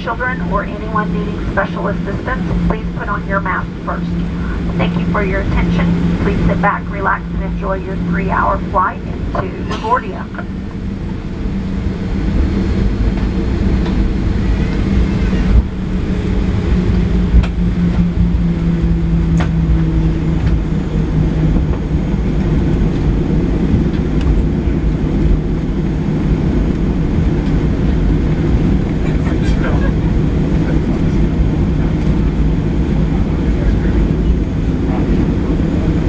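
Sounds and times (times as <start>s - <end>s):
airframe rolling rumble: 0.0s - 36.0s
jet engines humming: 0.0s - 36.0s.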